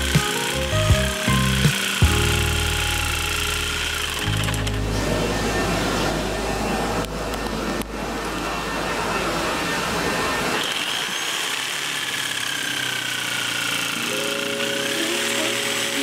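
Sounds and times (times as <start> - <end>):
jigsaw sawing metal tube: 0.0 - 4.6, 10.6 - 16.0.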